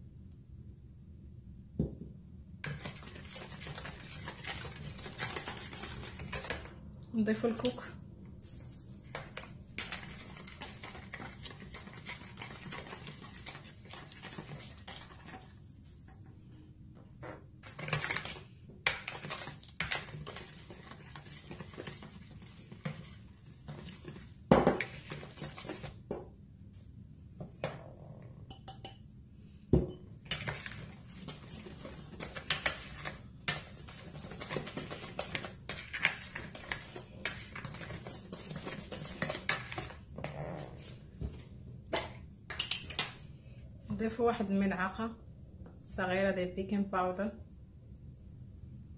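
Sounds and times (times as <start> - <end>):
whisk scraping batter in bowl: 2.6 - 6.7, 9.0 - 15.6, 17.6 - 26.0, 30.3 - 40.0
glassware clinking: 28.5 - 29.0.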